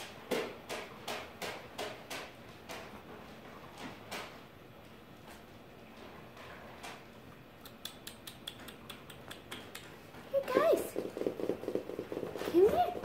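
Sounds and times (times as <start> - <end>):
kitten claws clicking on floor: 7.6 - 13.0.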